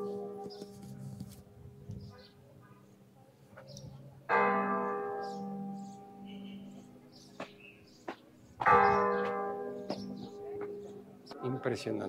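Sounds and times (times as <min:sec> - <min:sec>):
church bell tolling: 0:00.0 - 0:01.0, 0:04.2 - 0:07.6, 0:08.6 - 0:11.8.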